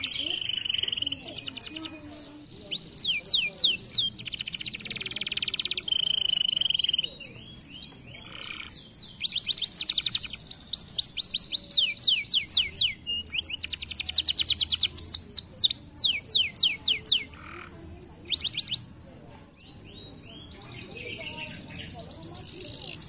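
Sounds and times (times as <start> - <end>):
canary singing fast trills: 0.0 - 19.0, 19.6 - 23.0.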